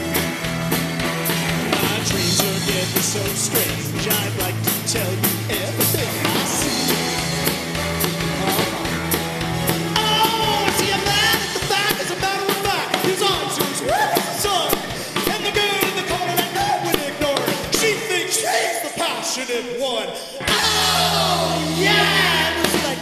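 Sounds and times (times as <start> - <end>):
rock band playing: 0.0 - 19.4, 20.4 - 23.0
man singing: 1.6 - 23.0.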